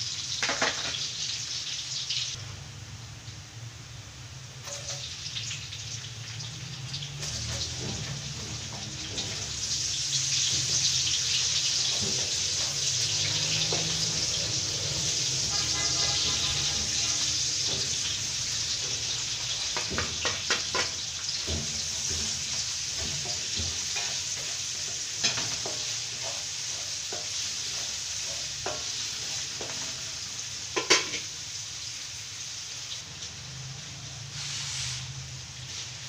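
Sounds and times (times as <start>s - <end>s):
onions sizzling in oil: 0.0s - 36.0s
spatula scraping and knocking pan: 7.2s - 30.1s, 30.7s - 31.3s.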